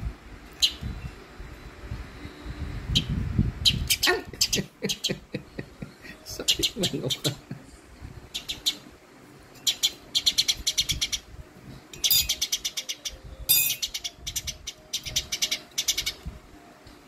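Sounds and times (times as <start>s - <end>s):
sparrow chattering calls: 8.3s - 8.8s, 9.6s - 11.3s, 12.0s - 16.2s.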